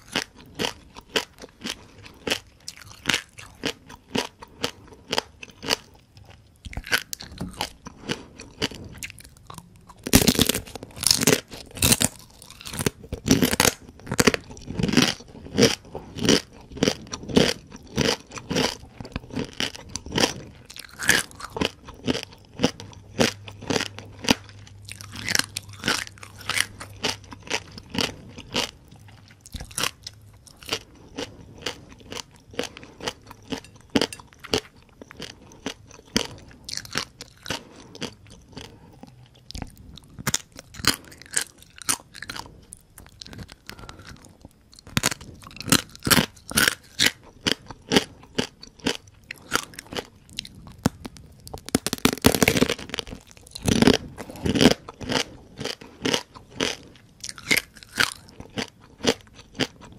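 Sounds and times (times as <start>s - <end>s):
crunchy shells chewed: 0.0s - 59.9s.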